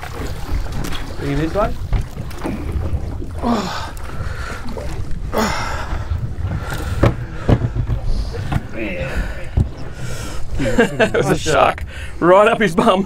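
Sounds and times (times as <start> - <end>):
boat engine rumble: 0.0 - 13.0.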